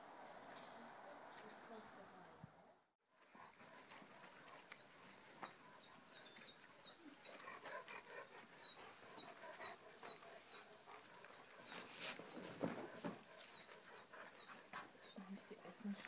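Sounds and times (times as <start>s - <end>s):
soft dog sounds: 3.2s - 16.0s.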